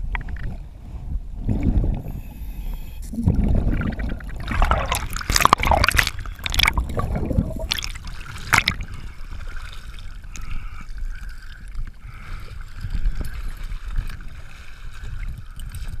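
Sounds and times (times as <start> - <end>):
water sloshing and trickling: 3.1 - 16.0
sharp water splashes: 3.2 - 10.4.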